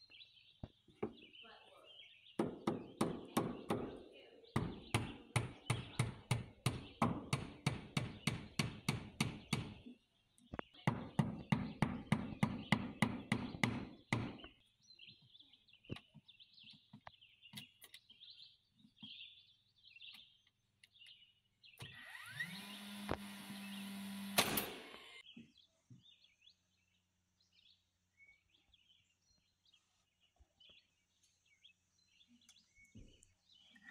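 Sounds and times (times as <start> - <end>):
birds chirping faintly: 0.0 - 33.9
cordless nailer motor humming: 21.8 - 25.2
hammer driving nails into wood: 24.1 - 25.0.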